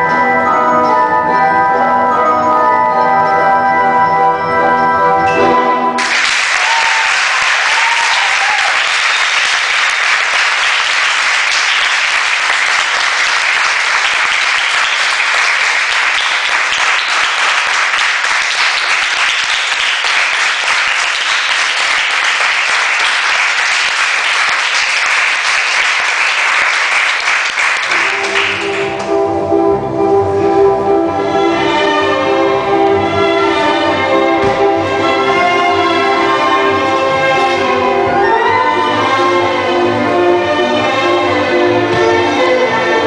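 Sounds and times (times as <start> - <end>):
people clapping: 6.0 - 29.1.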